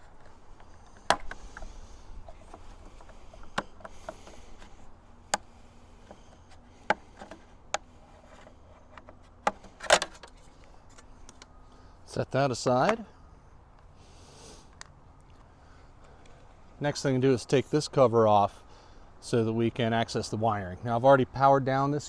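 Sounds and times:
light plastic scraping: 0.0s - 11.5s.

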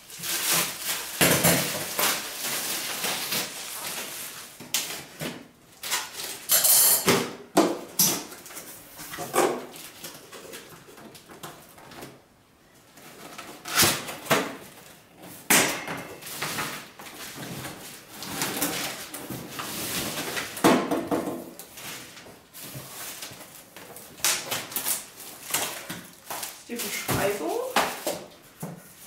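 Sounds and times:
cardboard scraping and rustling: 16.2s - 20.6s.

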